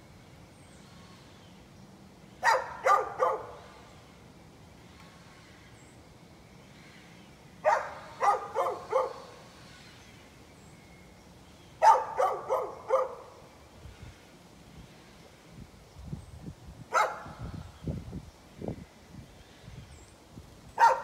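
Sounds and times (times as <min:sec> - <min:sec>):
dog barking: 0:02.4 - 0:03.6, 0:07.6 - 0:09.3, 0:11.8 - 0:13.3, 0:16.9 - 0:17.3, 0:20.8 - 0:21.0.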